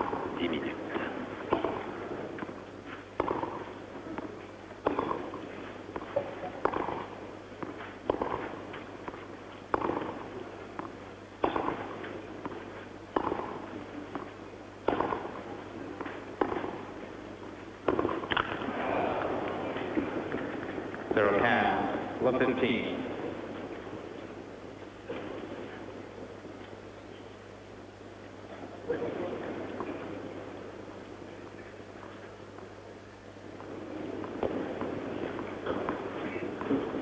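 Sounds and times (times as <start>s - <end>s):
tennis racket hitting ball: 1.4s - 2.5s, 3.2s - 17.1s, 17.8s - 18.8s.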